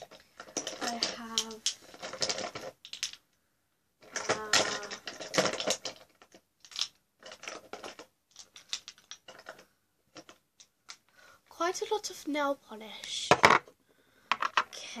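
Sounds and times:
small hard objects clattering: 0.0s - 3.3s, 4.0s - 11.1s.

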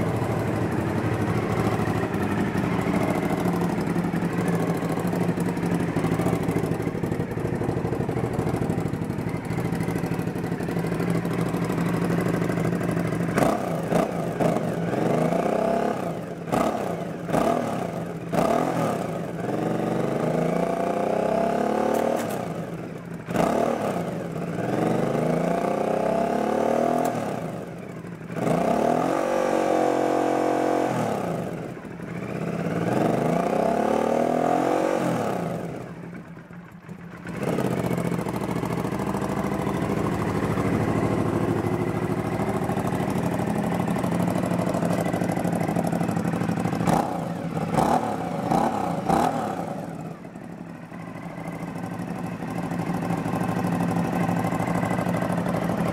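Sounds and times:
motorcycle engine idling: 0.0s - 55.9s
motorcycle engine revving: 0.0s - 55.9s.

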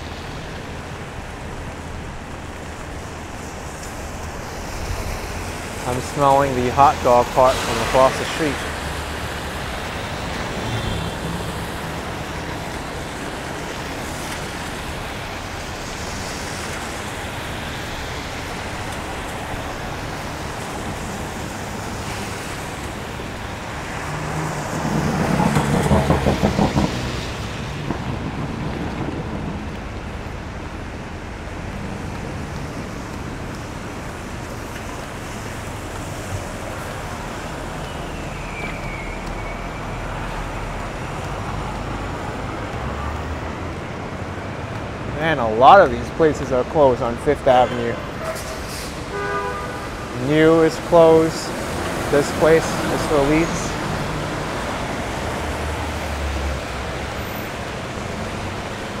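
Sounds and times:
passing cars: 0.0s - 59.0s
vehicle engine rumbling past: 23.6s - 30.0s.

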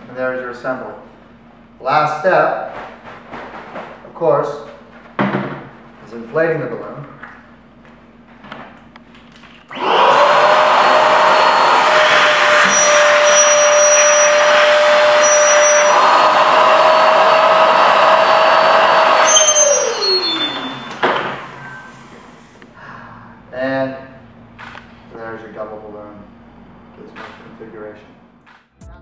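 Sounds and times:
balloon inflator motor whine: 9.7s - 22.7s.

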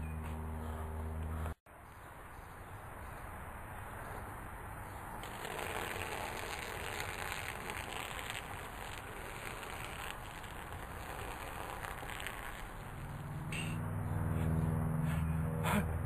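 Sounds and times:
liquid splashing onto paper: 5.2s - 13.2s.

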